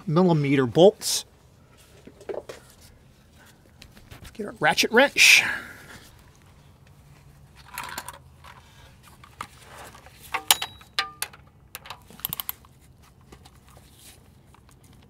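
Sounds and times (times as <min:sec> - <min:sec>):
metal clinks of ratchet wrench: 0:10.4 - 0:12.6.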